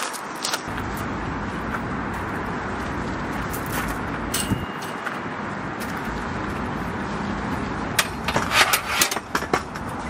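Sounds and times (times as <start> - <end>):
distant road traffic: 0.0 - 10.0
metal stool frame clattering: 4.3 - 5.2.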